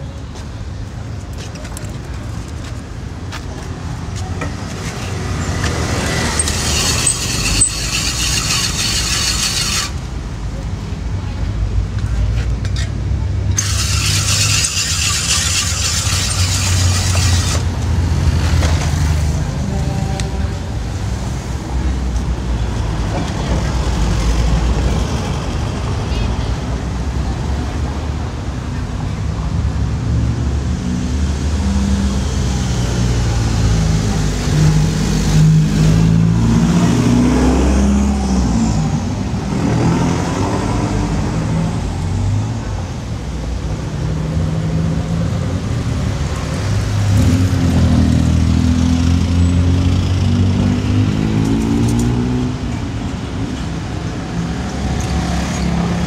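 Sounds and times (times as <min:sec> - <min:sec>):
vehicles passing close by: 0:00.0 - 0:56.0.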